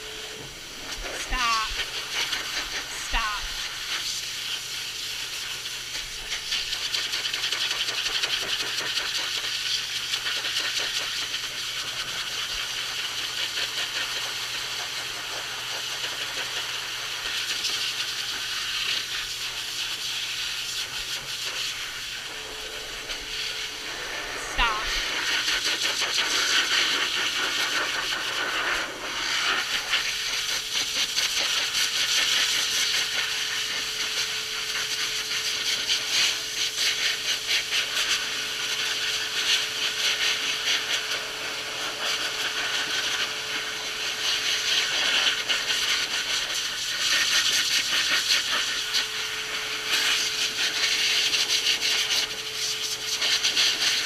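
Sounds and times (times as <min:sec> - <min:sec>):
dryer blowing air: 0:00.0 - 0:07.4, 0:18.5 - 0:47.3.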